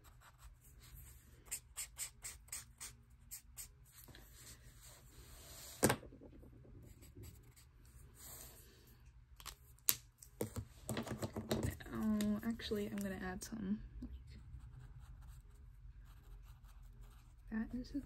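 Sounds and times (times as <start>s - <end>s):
marker scratching on paper: 0.0s - 3.7s.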